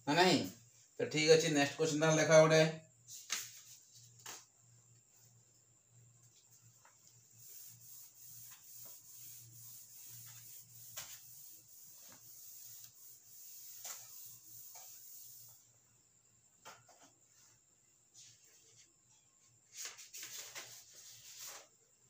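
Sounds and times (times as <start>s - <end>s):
cloth wiping whiteboard: 6.3s - 15.7s, 19.8s - 21.7s.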